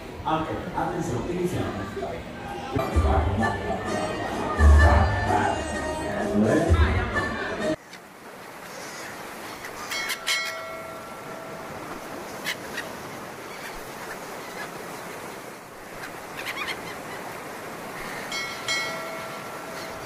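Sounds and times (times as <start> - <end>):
sea: 0.0 - 20.0
wind: 0.0 - 20.0
bird calls: 8.7 - 20.0.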